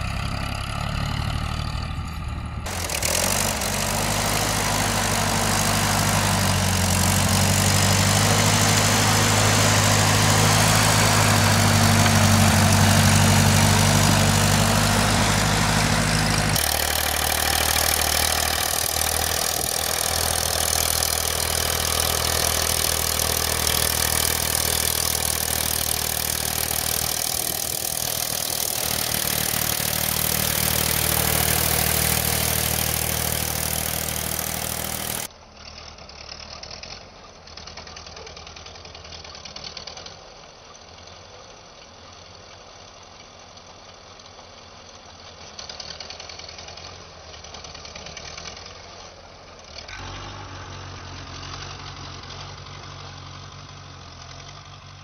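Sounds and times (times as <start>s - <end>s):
tractor engine droning: 0.0s - 35.4s
tractor engine pushing snow plow: 0.0s - 55.0s.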